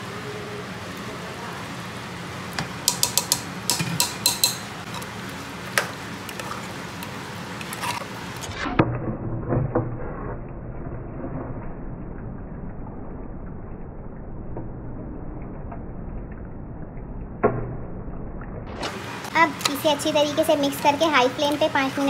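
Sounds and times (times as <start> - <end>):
stirring clunks in pot: 2.6 - 5.0
metal spoon clinking on cookware: 2.8 - 5.0.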